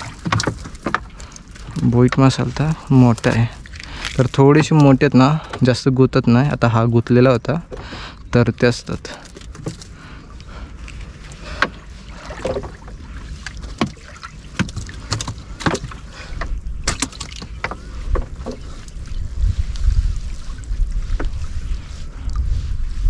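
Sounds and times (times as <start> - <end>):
water splashing: 0.0 - 5.9, 7.4 - 22.5
wind rumble on microphone: 9.6 - 23.0.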